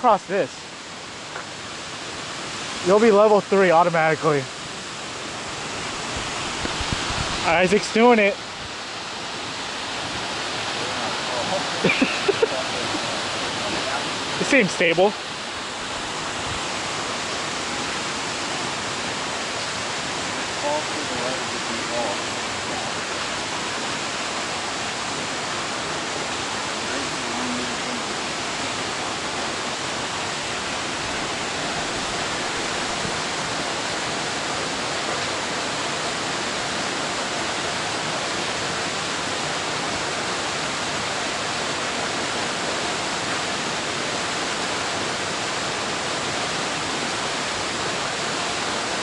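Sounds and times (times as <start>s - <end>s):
flowing water rushing: 0.0s - 49.0s.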